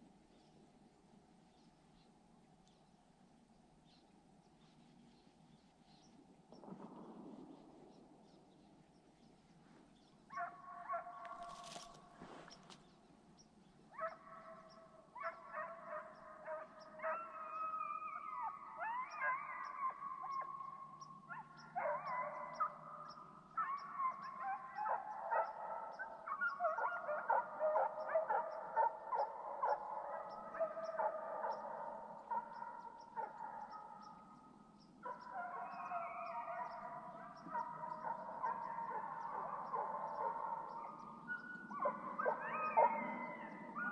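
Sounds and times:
hounds baying and howling: 10.3 - 12.8, 13.9 - 43.9.

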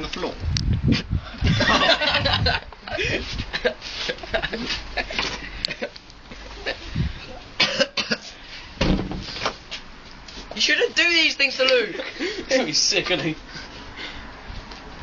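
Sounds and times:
man coughing and spluttering: 7.6 - 8.2.

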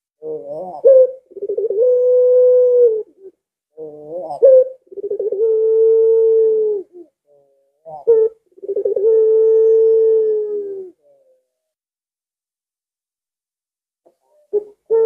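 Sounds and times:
dove cooing: 0.2 - 11.5, 14.4 - 15.0.

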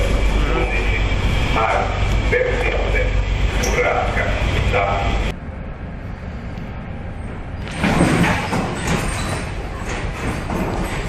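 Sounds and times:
heavy sea rumbling: 0.0 - 5.3
storm wind: 0.0 - 11.0.

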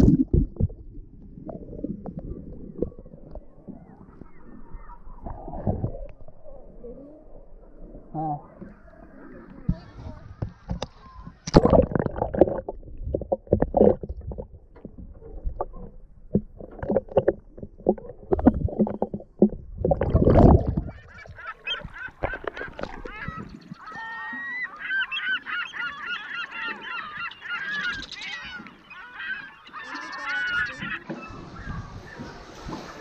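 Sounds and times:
muffled underwater sloshing: 0.0 - 33.0
seabirds calling: 20.6 - 33.0.

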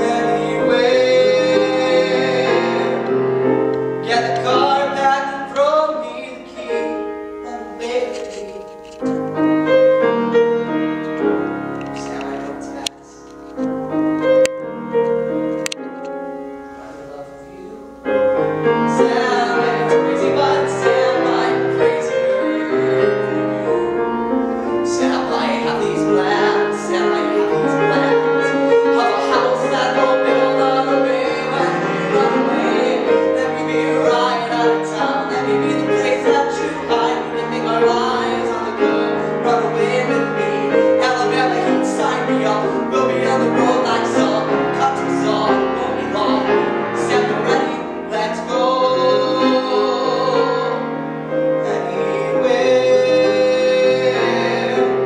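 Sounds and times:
man singing: 0.0 - 3.2, 4.0 - 9.0, 18.8 - 23.8, 24.7 - 55.0
grand piano accompaniment: 0.0 - 55.0.

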